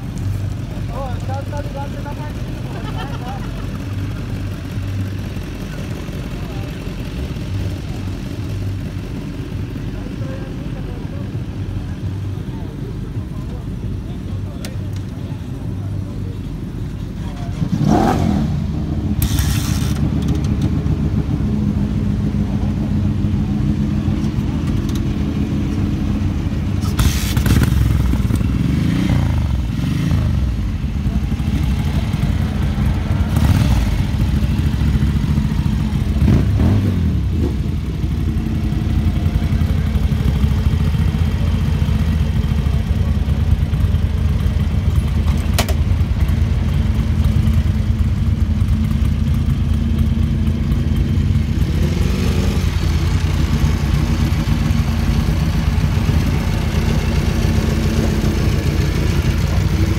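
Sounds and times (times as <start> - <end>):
motorcycle engine revving: 17.2 - 59.9.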